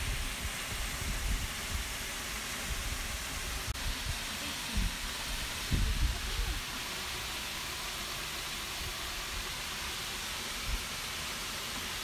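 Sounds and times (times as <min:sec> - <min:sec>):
wind rumbling on microphone: 0:00.0 - 0:06.6
waterfall rushing: 0:00.0 - 0:12.0.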